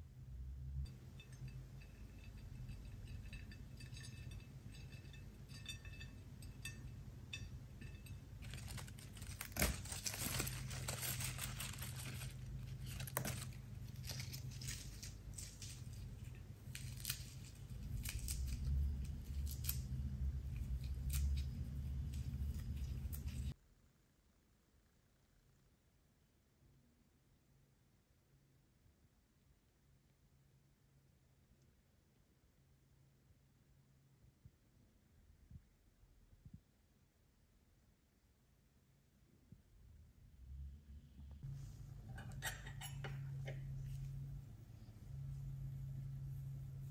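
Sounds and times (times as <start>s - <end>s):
steady low hum: 0.0s - 26.6s, 33.3s - 46.9s
basil leaves tearing: 8.4s - 23.5s.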